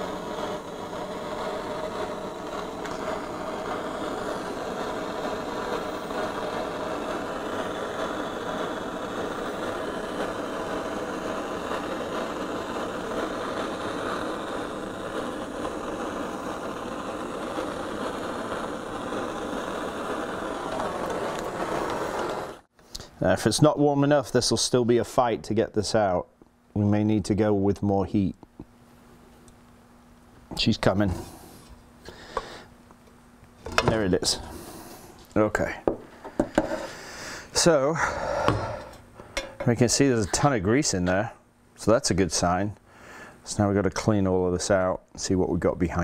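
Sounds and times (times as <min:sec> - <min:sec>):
gas torch burning: 0:00.0 - 0:29.8, 0:30.4 - 0:46.0.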